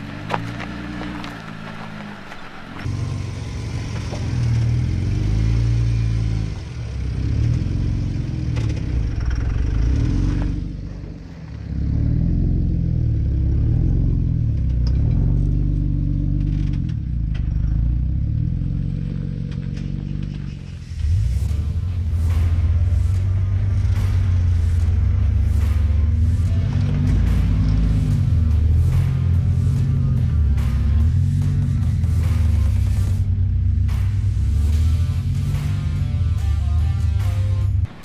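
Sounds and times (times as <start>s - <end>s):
car engine revving: 0.0s - 38.0s.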